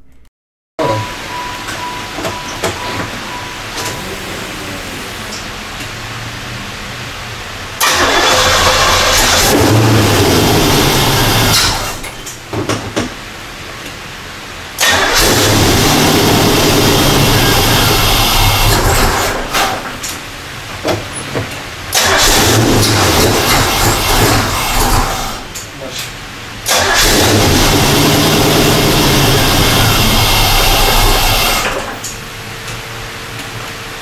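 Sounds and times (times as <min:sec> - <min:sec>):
car engine starting and stumbling: 0:01.3 - 0:13.2, 0:14.7 - 0:25.8, 0:26.5 - 0:32.2
engine sputter: 0:07.8 - 0:12.3, 0:14.8 - 0:19.9, 0:21.9 - 0:25.6, 0:26.6 - 0:32.1.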